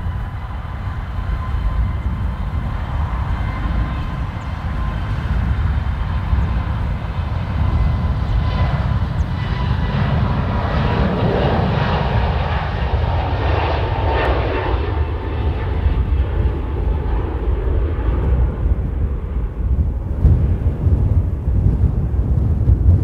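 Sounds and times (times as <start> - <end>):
jet engines roaring: 0.0 - 23.0.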